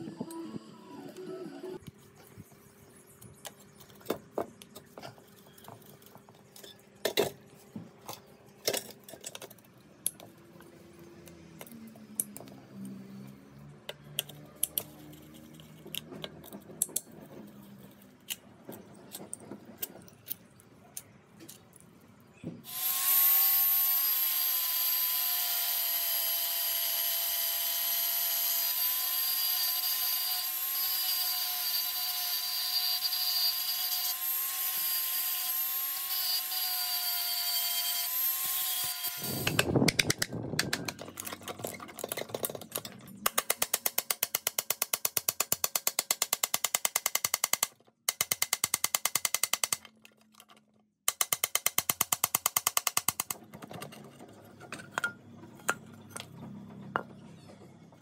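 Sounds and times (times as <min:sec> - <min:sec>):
power tool whining: 0:22.6 - 0:39.8.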